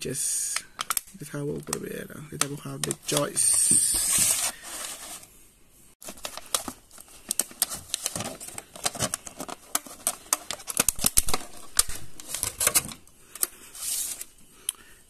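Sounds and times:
plastic box crackling and clicking: 0:00.5 - 0:01.8, 0:02.4 - 0:03.6, 0:06.0 - 0:13.5.

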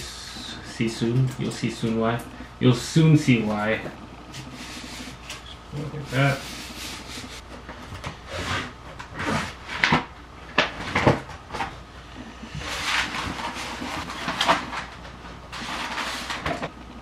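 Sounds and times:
paper rustling and crinkling: 0:12.6 - 0:16.7.

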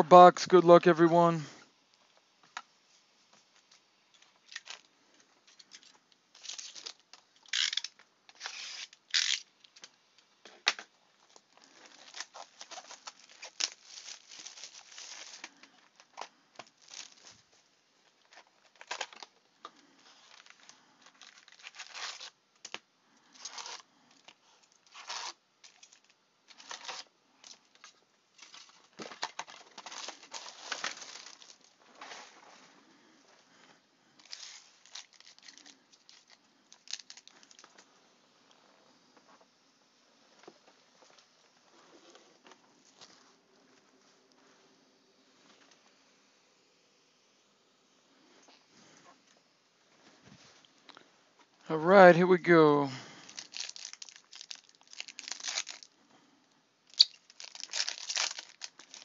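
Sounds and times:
packaging tearing and crinkling: 0:04.4 - 0:04.9, 0:05.7 - 0:09.9, 0:10.6 - 0:17.5, 0:18.2 - 0:19.4, 0:20.1 - 0:32.4, 0:34.2 - 0:37.8, 0:53.2 - 0:56.0, 0:56.9 - 0:59.0.

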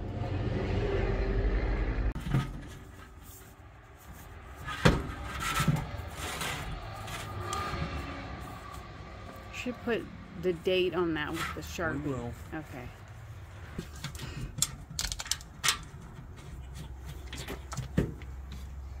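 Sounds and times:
low rumble: 0:00.0 - 0:02.9
knocks and clanks: 0:02.2 - 0:03.3, 0:04.6 - 0:08.2, 0:13.7 - 0:18.8.

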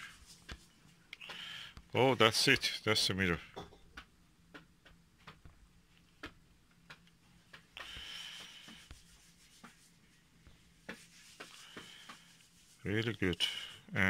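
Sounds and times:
rubbing: 0:08.2 - 0:13.4.

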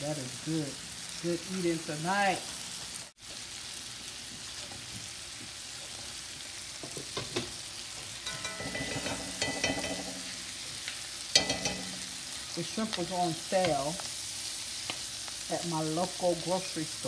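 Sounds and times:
shrimp sizzling in a skillet: 0:00.0 - 0:17.0
knife scraping a pan: 0:08.1 - 0:10.3.

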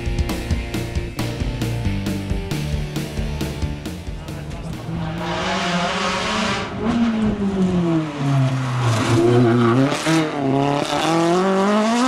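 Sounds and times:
rally car engine revving: 0:04.0 - 0:12.0.

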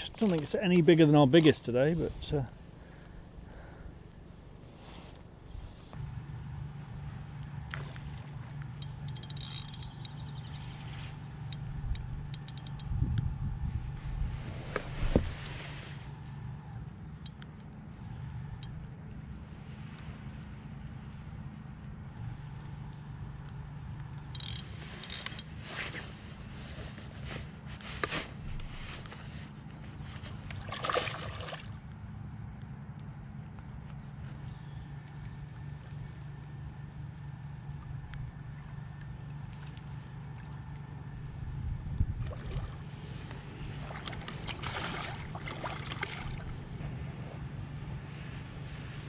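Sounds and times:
light ticks and clicks: 0:11.4 - 0:13.3, 0:17.1 - 0:19.2
wind rumble on microphone: 0:11.7 - 0:15.7, 0:40.6 - 0:47.5
wind buffeting microphone: 0:11.8 - 0:15.4, 0:41.2 - 0:42.9
fish splashing at water surface: 0:30.2 - 0:31.8, 0:43.7 - 0:46.6.

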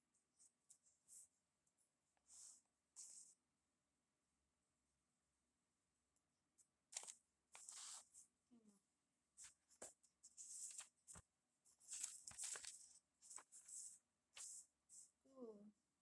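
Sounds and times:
paper rustling and crinkling: 0:06.9 - 0:08.2, 0:09.4 - 0:15.0.

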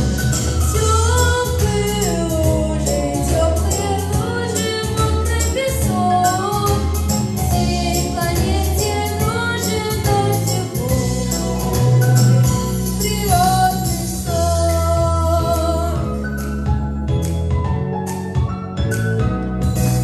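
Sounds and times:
backing track with steady beat: 0:00.0 - 0:20.0.

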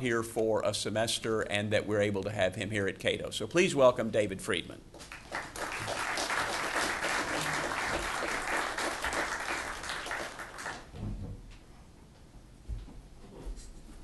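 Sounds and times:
audience applauding: 0:05.0 - 0:10.9.

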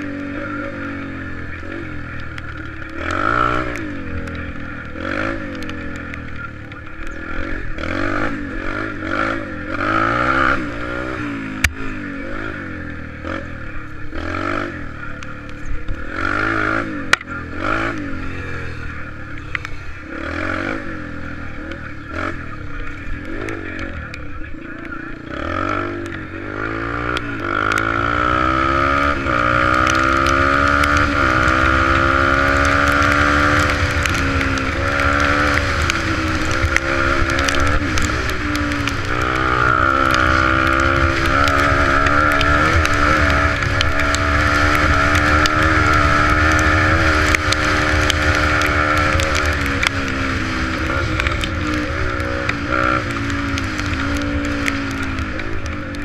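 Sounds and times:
dirt bike engine accelerating: 0:00.0 - 0:56.0
wind rumble on microphone: 0:27.2 - 0:56.0.

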